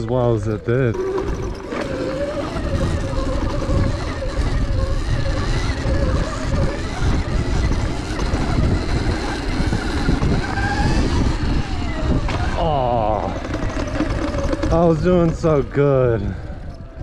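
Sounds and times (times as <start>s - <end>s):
electric motor whining: 0.0s - 17.0s
heavy steady rumble: 0.0s - 17.0s.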